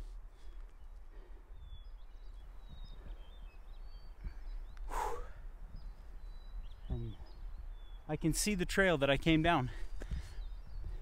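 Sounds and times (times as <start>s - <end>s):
faint bird chirps: 0.0s - 8.5s
wind rumble on microphone: 1.5s - 8.0s, 9.2s - 11.0s.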